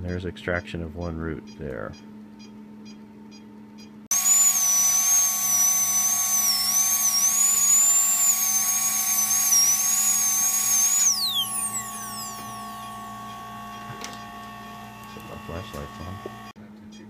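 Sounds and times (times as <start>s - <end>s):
dental drill whine: 4.1s - 16.6s.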